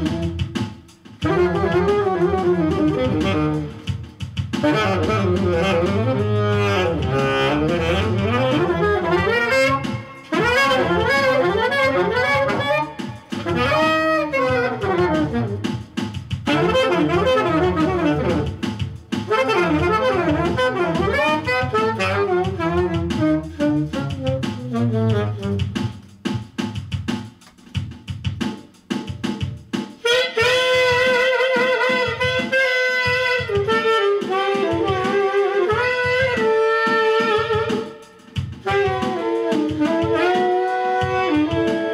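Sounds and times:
jazz saxophone with bending notes: 0.0 - 27.1, 29.0 - 41.9
bass: 0.0 - 29.6
drum beat: 0.0 - 41.9.

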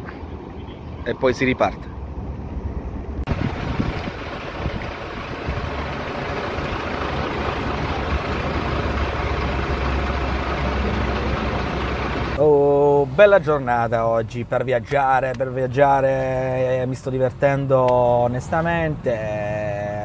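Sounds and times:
vehicle engine idling: 3.3 - 12.5.

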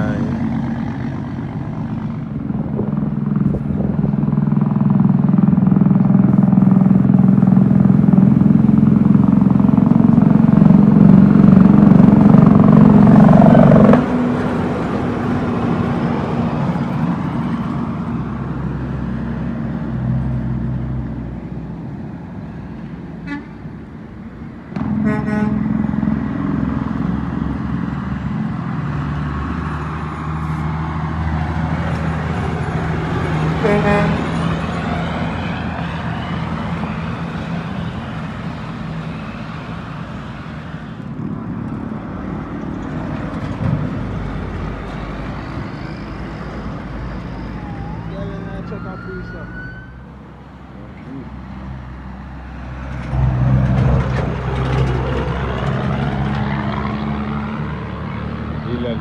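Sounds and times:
diesel truck engine passing: 0.0 - 59.0
truck horn toot: 23.2 - 23.6, 24.8 - 25.8, 33.6 - 34.5.

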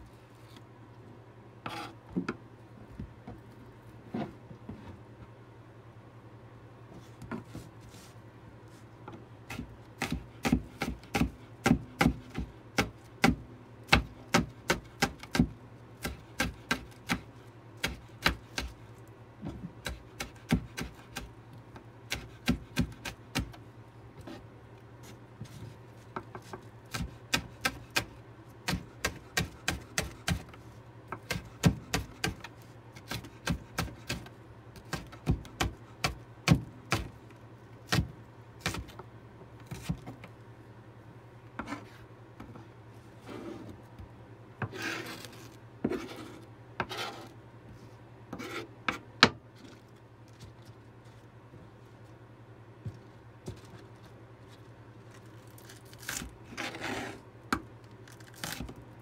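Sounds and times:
knife chopping on cutting board: 9.5 - 17.2, 19.8 - 21.3, 22.1 - 23.6, 26.4 - 30.5, 31.1 - 37.1.

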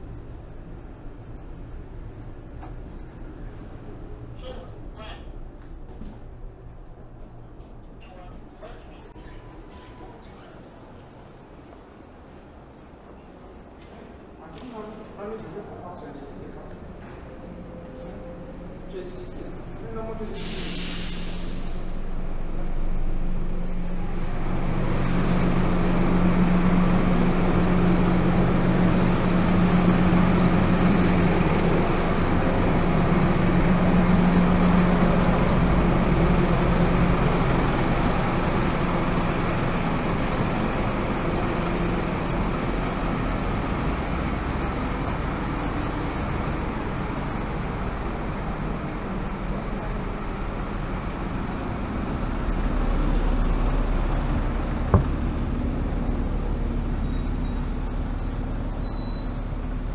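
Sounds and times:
bus engine idling: 0.0 - 59.9.

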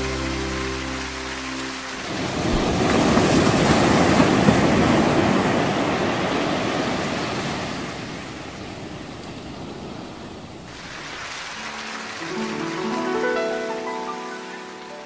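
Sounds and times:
water rushing past boat: 0.0 - 15.0.

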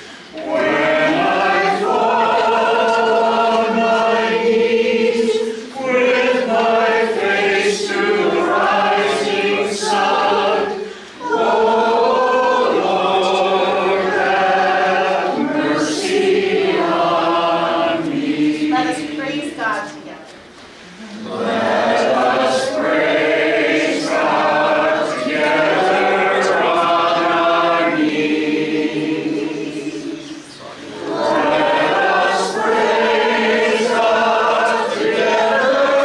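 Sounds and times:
congregation singing a hymn: 0.0 - 20.1, 20.8 - 36.0.

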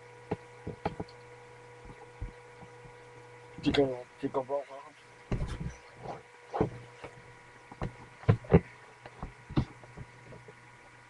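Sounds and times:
faint steady hum: 0.0 - 11.0
knocks and thuds: 0.3 - 1.1, 5.3 - 5.8, 7.7 - 10.4.

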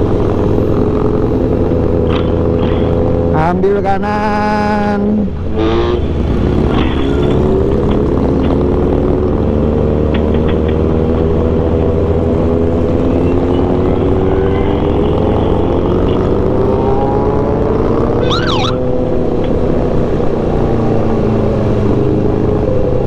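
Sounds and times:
motorcycle engine revving: 5.4 - 23.0.

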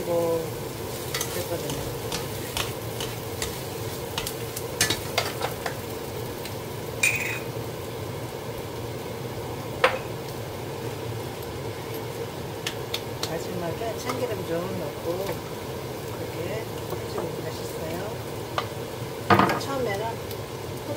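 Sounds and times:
mushrooms sizzling in frying pan: 0.0 - 20.9
spatulas tapping and scraping pan: 0.9 - 5.9, 7.0 - 7.5, 14.0 - 14.3.

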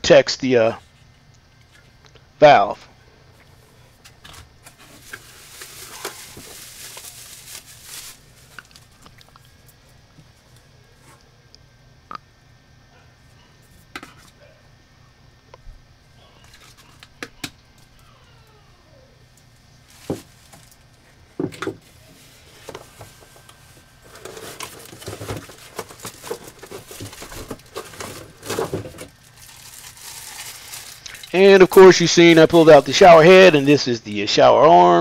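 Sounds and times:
plastic bag crinkling: 4.6 - 9.4, 19.8 - 20.9, 21.8 - 33.9.

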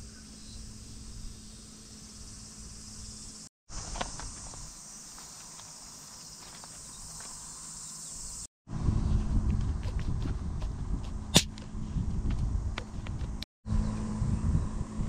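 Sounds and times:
insects buzzing: 0.0 - 8.5
light steps on gravel: 3.7 - 7.4.

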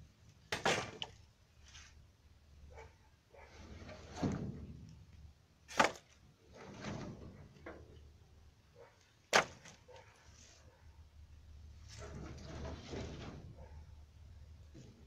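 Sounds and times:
branches rustling and scraping: 1.6 - 2.0.

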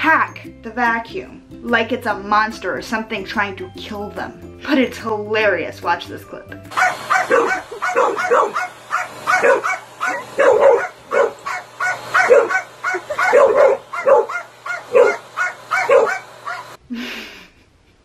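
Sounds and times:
dog barking: 6.7 - 16.8
vacuum cleaner hum: 6.7 - 16.8.

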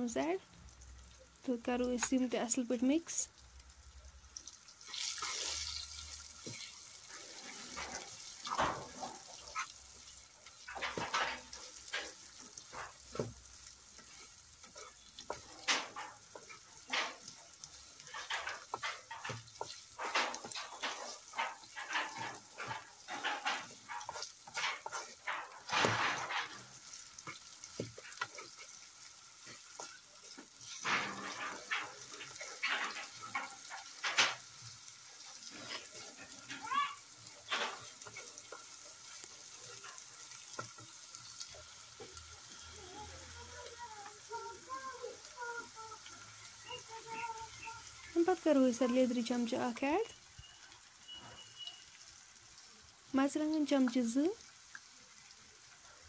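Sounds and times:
vegetables sizzling in oil: 0.0 - 56.0
spatula scraping a wok: 4.8 - 49.7.

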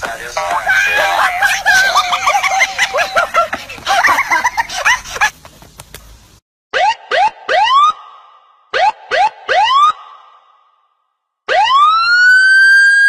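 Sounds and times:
voices: 0.0 - 5.3
rising siren whoops: 6.8 - 10.6, 11.5 - 13.0.

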